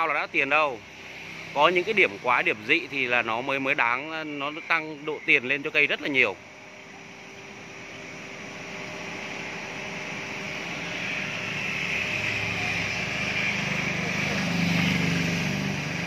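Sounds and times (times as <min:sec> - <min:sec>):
vehicle engine hum passing: 0:00.0 - 0:16.0.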